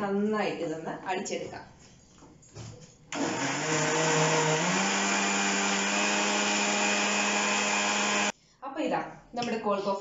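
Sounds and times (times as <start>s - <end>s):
mixer grinder motor running: 3.2s - 8.3s.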